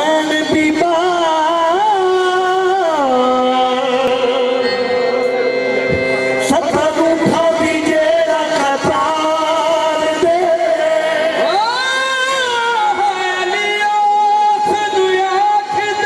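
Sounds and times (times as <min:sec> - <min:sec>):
harmonium: 0:00.0 - 0:16.0
male voices singing long notes: 0:06.4 - 0:16.0.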